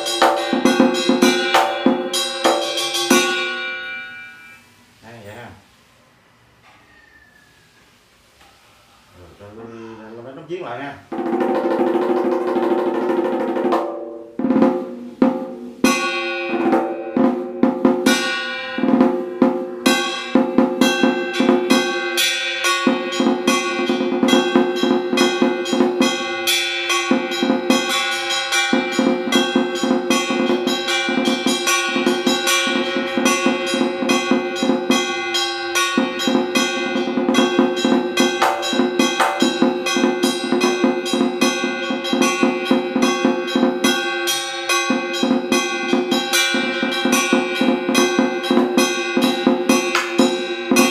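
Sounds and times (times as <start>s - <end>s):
large drum beaten with sticks: 0.0s - 3.6s, 11.1s - 50.9s.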